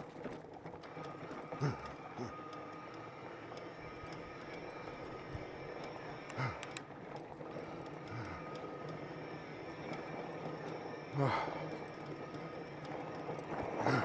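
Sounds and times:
e-bike tyres and motor hum: 0.0 - 14.0
faint steady whine: 0.0 - 14.0
sharp rattling clicks: 2.5 - 10.8.

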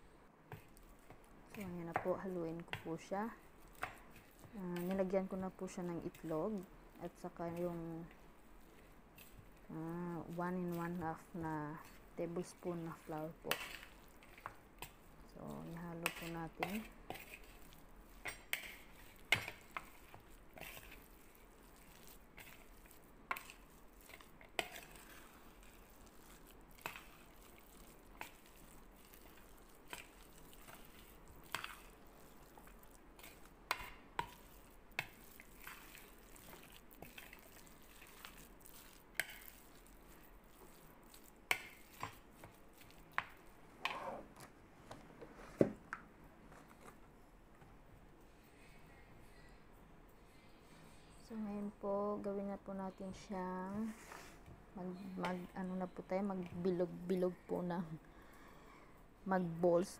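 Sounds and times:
wet squishing of stirred meat: 0.4 - 44.0.

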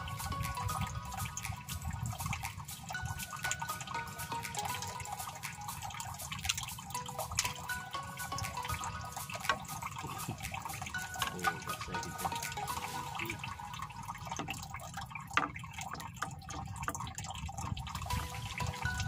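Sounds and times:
water lapping against boat hull: 0.0 - 19.0
small splashes and knocks: 6.0 - 19.0.

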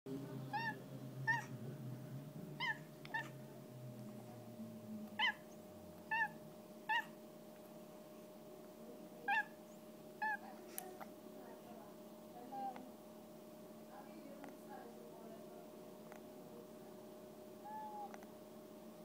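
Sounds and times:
cat chirping: 0.5 - 1.5, 2.6 - 3.4, 5.2 - 7.2, 9.3 - 10.4, 17.6 - 18.2.

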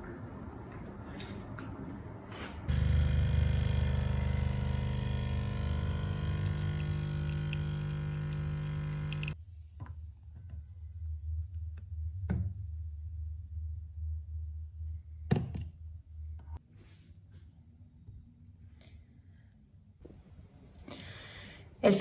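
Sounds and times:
espresso machine pump humming: 2.7 - 9.4
coffee running into a mug: 2.8 - 9.4.

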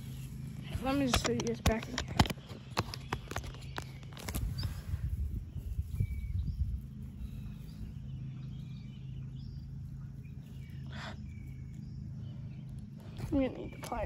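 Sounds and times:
steady low rumble: 0.0 - 14.0
handling bumps: 0.6 - 4.6
faint bird chirps: 1.7 - 14.0.

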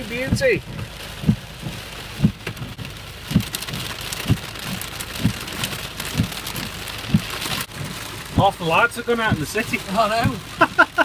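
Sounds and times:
rain on car roof: 0.0 - 11.0
low thump: 0.3 - 3.5.

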